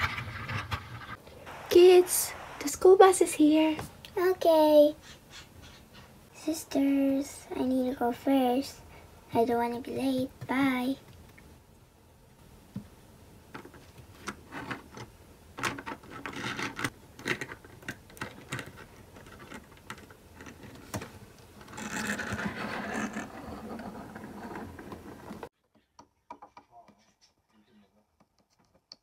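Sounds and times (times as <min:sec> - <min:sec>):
plastic toys rubbing and scraping: 0:00.0 - 0:03.7, 0:15.7 - 0:21.0, 0:21.6 - 0:25.5
plastic toys clicking and tapping: 0:13.5 - 0:21.1.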